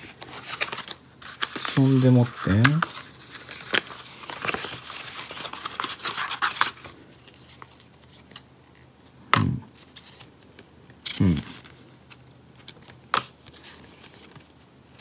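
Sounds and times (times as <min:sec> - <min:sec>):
paper and cardboard rustling: 0:00.0 - 0:08.4, 0:09.8 - 0:15.0
person murmuring: 0:09.3 - 0:09.7, 0:11.1 - 0:11.6.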